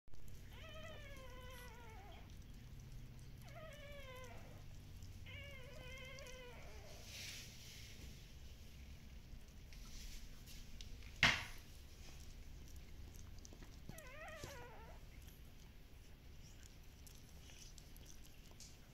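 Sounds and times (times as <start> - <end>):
puppies crying: 0.3 - 7.0, 12.6 - 15.6.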